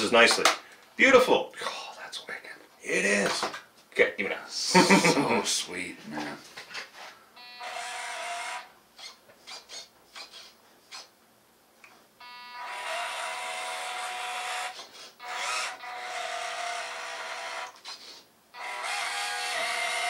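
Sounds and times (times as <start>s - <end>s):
electric motor and gears whining: 7.6s - 8.7s, 12.5s - 17.8s, 18.6s - 20.0s.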